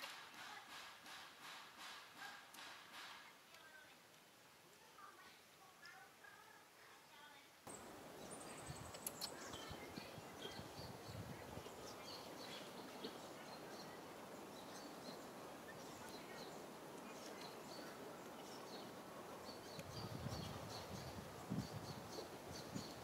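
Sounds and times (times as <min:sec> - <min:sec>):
outdoor background noise: 0:00.0 - 0:23.0
small birds chirping: 0:04.8 - 0:23.0.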